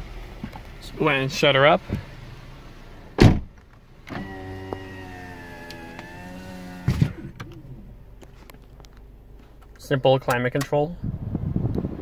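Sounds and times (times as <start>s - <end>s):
power window motor whine: 4.1s - 7.8s.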